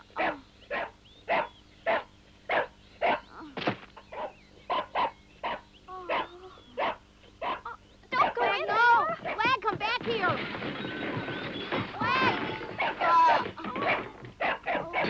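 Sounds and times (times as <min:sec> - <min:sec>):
dog barking: 0:00.2 - 0:03.3, 0:04.1 - 0:09.5, 0:12.7 - 0:15.0.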